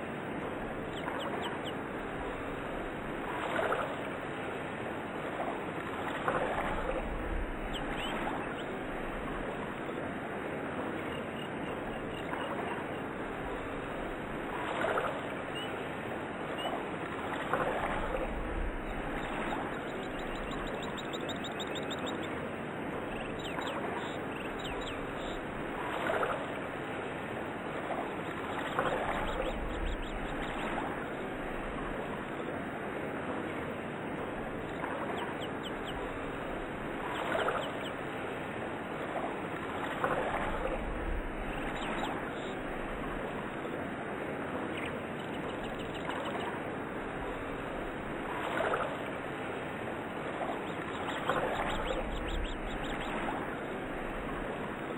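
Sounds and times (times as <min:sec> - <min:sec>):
birds chirping: 0:00.0 - 0:54.9
running water: 0:00.0 - 0:54.9.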